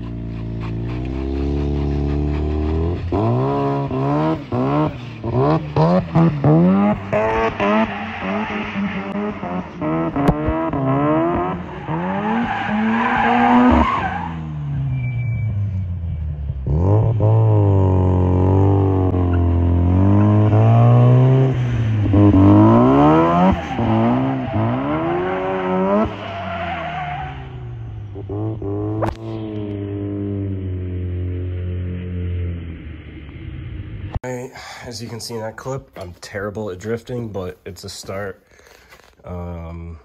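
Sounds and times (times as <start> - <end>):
tyres squealing on asphalt: 0.0 - 9.9, 11.5 - 16.4, 19.2 - 27.9
rotary engine revving: 0.0 - 15.0, 16.5 - 32.6.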